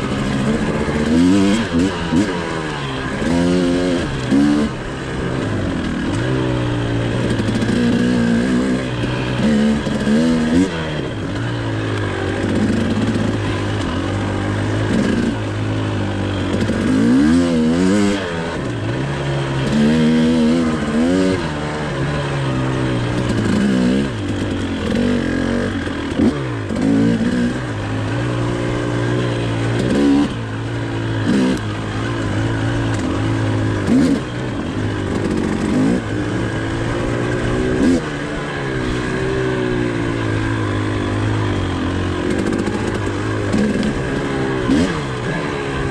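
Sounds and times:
two-stroke engine revving: 0.0s - 45.9s.

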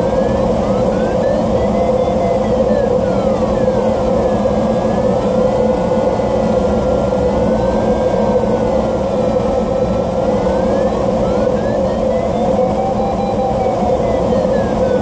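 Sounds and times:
faint electronic variometer tone: 0.0s - 15.0s.

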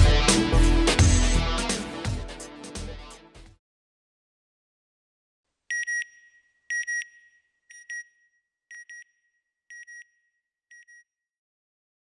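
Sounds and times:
electronic beeps in pairs: 5.7s - 9.1s.

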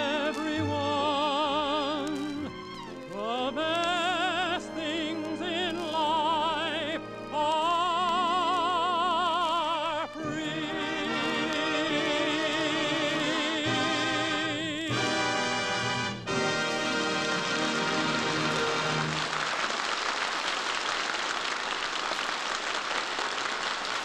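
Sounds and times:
tenor singing with vibrato: 0.0s - 19.1s
orchestra playing: 0.0s - 19.7s.

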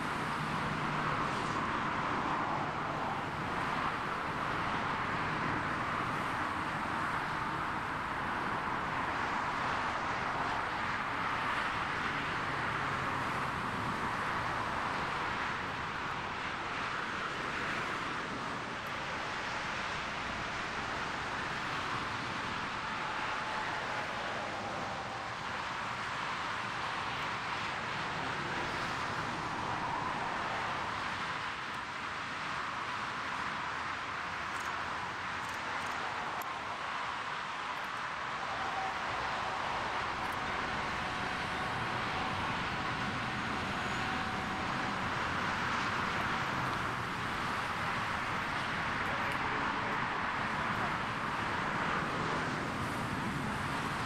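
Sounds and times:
jet engines rushing: 38.4s - 54.0s.

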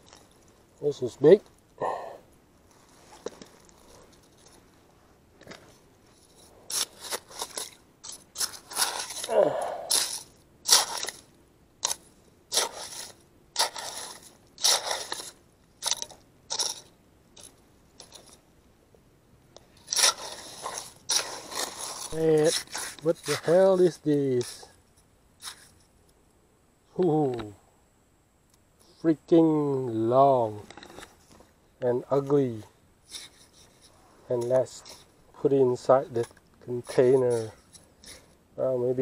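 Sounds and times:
hand rake scraping gravelly mud: 0.0s - 1.5s, 5.4s - 18.4s, 19.6s - 24.8s, 25.4s - 25.8s, 31.9s - 39.0s.

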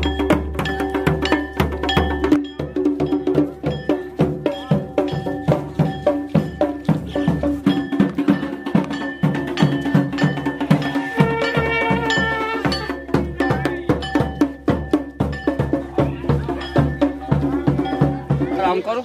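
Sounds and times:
hand drum beating quick rhythm: 0.0s - 19.0s
wind instrument holding a note: 10.9s - 12.9s.

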